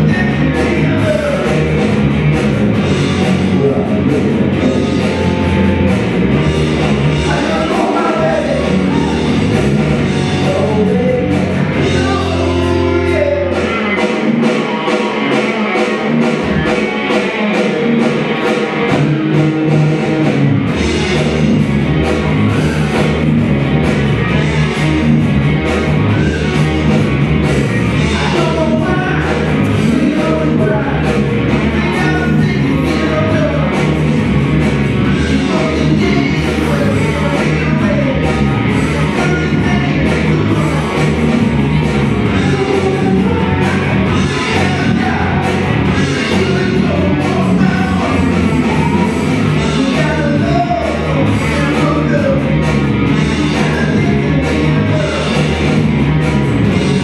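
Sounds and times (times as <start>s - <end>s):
man singing: 0.0s - 1.8s, 3.2s - 5.8s, 7.2s - 9.5s, 10.2s - 14.0s, 28.0s - 34.0s, 35.1s - 41.3s, 42.3s - 55.7s
bass: 0.0s - 57.0s
electric guitars: 0.0s - 57.0s
electronic drum kit: 0.0s - 57.0s.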